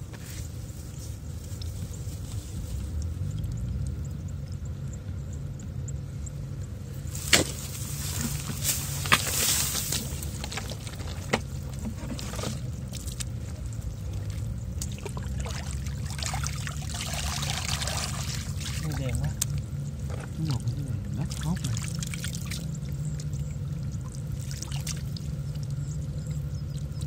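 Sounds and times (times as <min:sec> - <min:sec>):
muddy water sloshing and trickling: 0:00.0 - 0:05.2, 0:06.7 - 0:27.0
steady low rumble: 0:00.0 - 0:27.0
water streaming from basket: 0:14.1 - 0:25.8.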